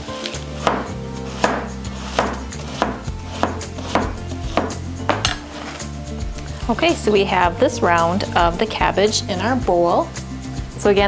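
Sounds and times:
knife slicing cabbage: 0:00.2 - 0:05.9
knife knocking on cutting board: 0:00.6 - 0:05.4.

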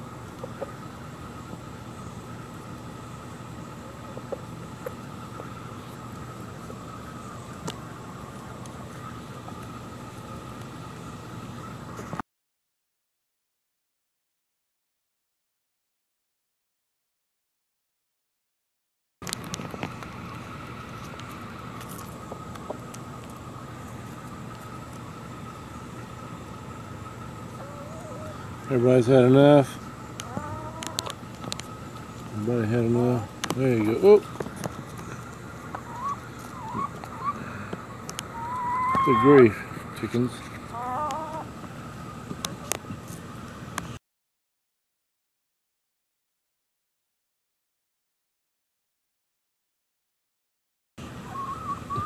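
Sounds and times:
chickens pecking on pavement: 0:00.0 - 0:11.0, 0:19.2 - 0:43.8
insects chorus: 0:00.0 - 0:12.0, 0:20.0 - 0:42.8.

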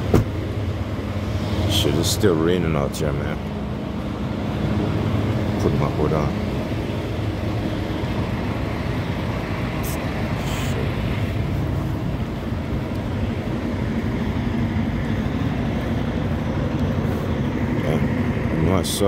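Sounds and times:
diesel truck engines idling: 0:00.0 - 0:19.0.

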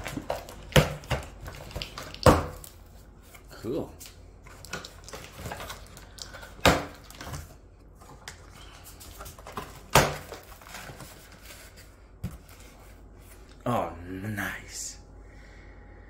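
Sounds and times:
cardboard tapping and rustling: 0:08.1 - 0:12.8.

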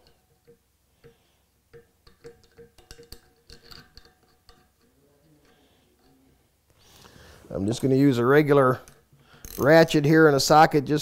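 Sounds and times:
faint metallic clicks and ticks: 0:00.0 - 0:07.2.

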